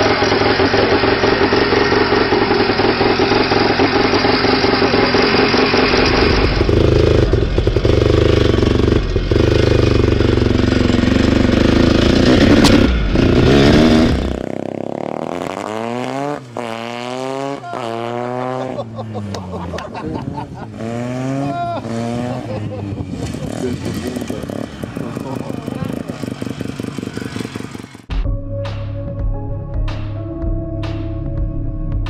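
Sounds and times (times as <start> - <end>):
dirt bike engine running hard: 0.0 - 19.3, 20.0 - 28.2
motorcycle accelerating: 0.0 - 28.2
gear change: 18.8 - 28.1.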